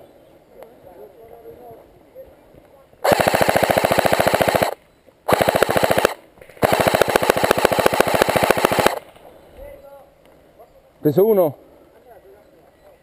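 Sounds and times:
airsoft rifle full-auto bursts: 3.0 - 9.0.

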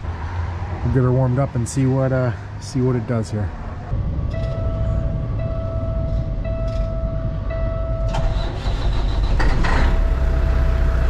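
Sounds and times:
diesel engine idling: 4.0 - 11.0
starter cranking diesel engine: 8.0 - 11.0.

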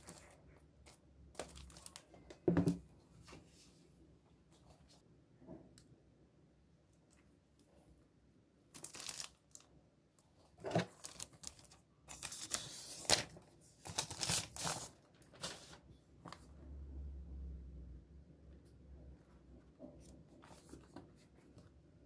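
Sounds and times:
plastic film peeling: 8.8 - 9.7.

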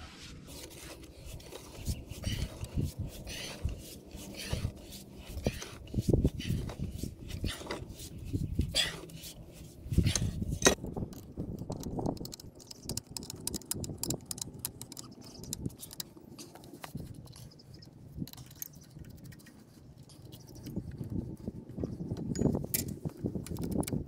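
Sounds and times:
metal clinks and knocks: 22.2 - 23.8.

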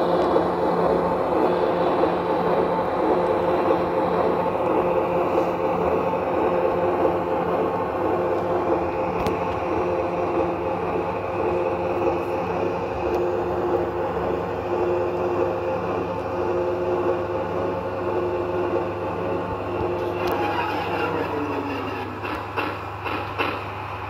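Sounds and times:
electric locomotive running hum: 0.0 - 24.0
model train wheels rolling: 0.0 - 24.0.

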